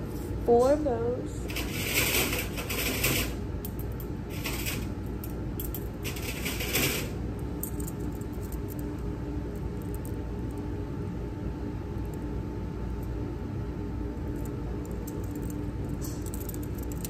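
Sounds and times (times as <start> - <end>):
steady low hum: 0.0 - 17.0
metal instruments clinking: 1.5 - 8.9, 14.4 - 17.0.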